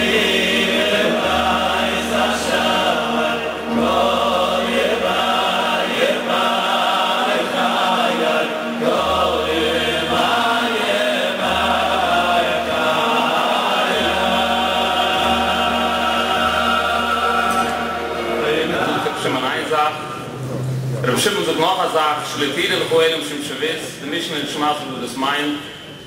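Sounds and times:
crowd of men singing: 0:00.0 - 0:19.7.

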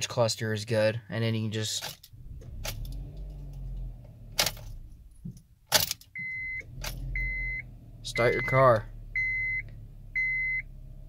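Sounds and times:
car keys jangling: 0:01.7 - 0:07.0
high electronic car beep: 0:06.2 - 0:10.7.

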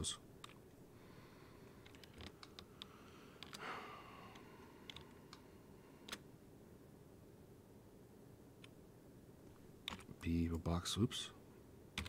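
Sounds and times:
keyboard and mouse clicks: 0:01.8 - 0:03.7, 0:04.3 - 0:05.4, 0:09.8 - 0:10.1.

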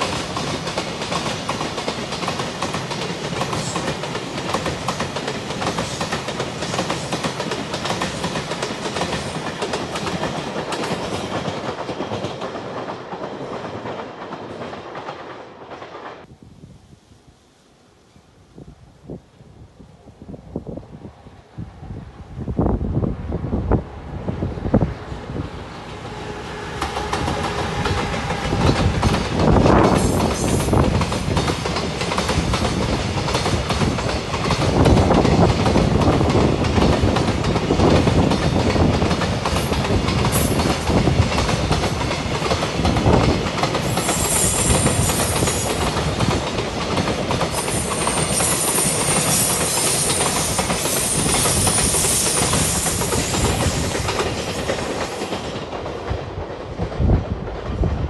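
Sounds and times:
electric locomotive passing: 0:00.0 - 0:16.4, 0:20.0 - 0:58.0
high-pitched wheel squeal: 0:44.0 - 0:45.8.

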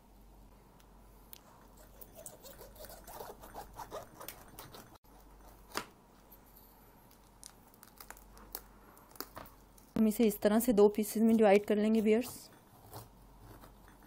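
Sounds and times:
knife crunching through pineapple: 0:01.8 - 0:05.9.

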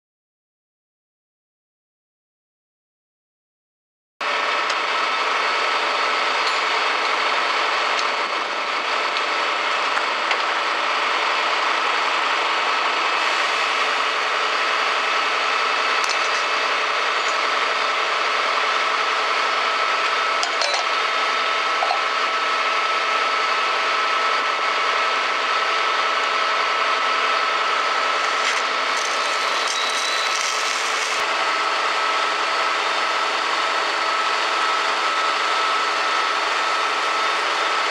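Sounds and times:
fire engine pumps whining: 0:04.2 - 0:37.9
hose water spray: 0:28.1 - 0:31.2.

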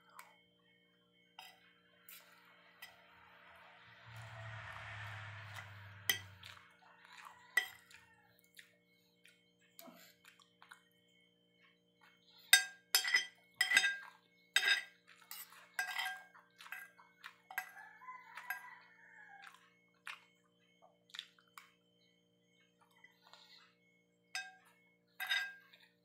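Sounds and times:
cutlery clinking on a plate: 0:05.6 - 0:08.0, 0:12.5 - 0:17.8, 0:18.4 - 0:18.7, 0:24.4 - 0:26.0.

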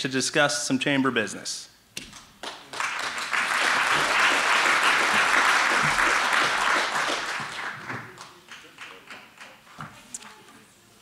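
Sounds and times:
audience applauding: 0:02.4 - 0:09.8.

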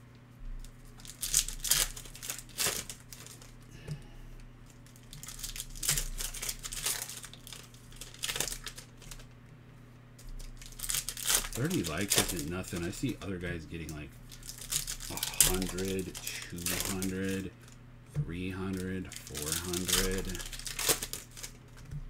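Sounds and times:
foil wrappers crinkling and tearing: 0:00.6 - 0:04.0, 0:04.6 - 0:09.3, 0:10.2 - 0:17.8, 0:18.6 - 0:22.0.

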